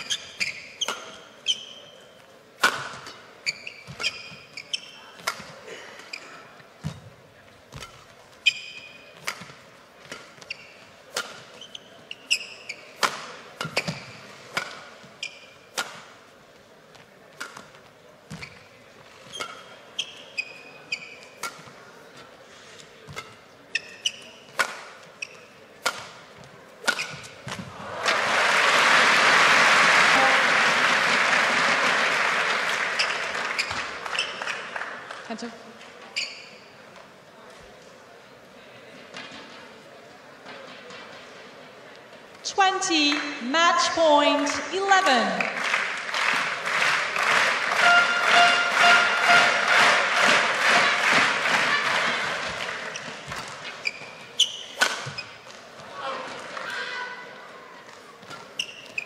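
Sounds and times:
shoes squeaking on court: 0:00.0 - 0:22.3, 0:22.9 - 0:27.7, 0:32.9 - 0:34.7, 0:36.0 - 0:37.0, 0:51.1 - 0:55.9, 0:57.9 - 0:59.0
rackets smacking shuttlecock: 0:00.8 - 0:01.2, 0:02.6 - 0:03.2, 0:03.8 - 0:05.6, 0:07.7 - 0:16.2, 0:17.0 - 0:18.6, 0:19.2 - 0:22.2, 0:23.1 - 0:27.8, 0:47.8 - 0:55.7
crowd applause: 0:27.7 - 0:35.2, 0:45.4 - 0:53.0.

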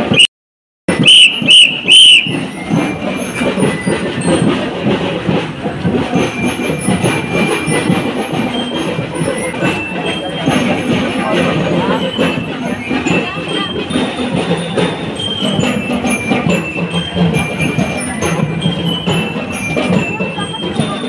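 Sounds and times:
jumbled din of parade: 0:00.0 - 0:00.3, 0:00.9 - 0:21.0
shrill whistle blasts: 0:00.0 - 0:00.3, 0:00.9 - 0:02.6.

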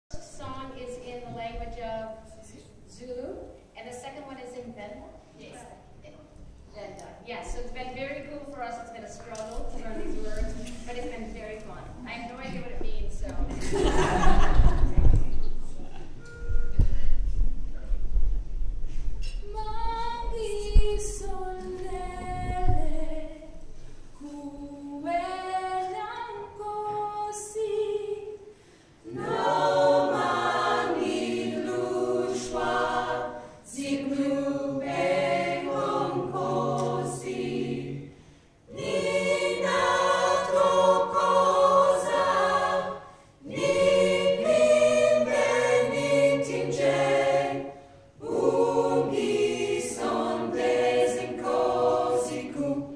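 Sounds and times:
choir singing a cappella: 0:19.5 - 0:52.9.

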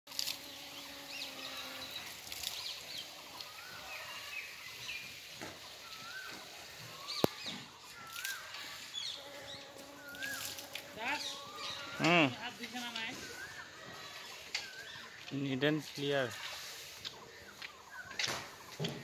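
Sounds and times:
background hiss: 0:00.1 - 0:19.0
birds chirping and calling: 0:00.5 - 0:19.0.

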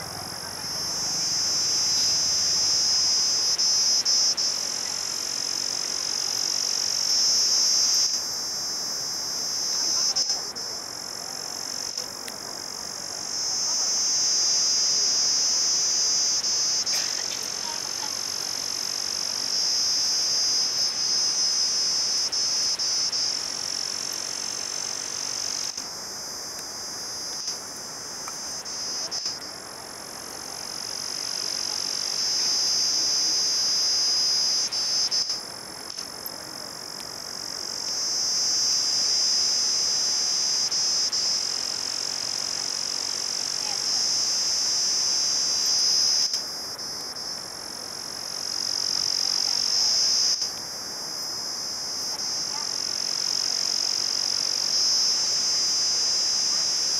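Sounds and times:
crickets chirring: 0:00.0 - 0:56.9.

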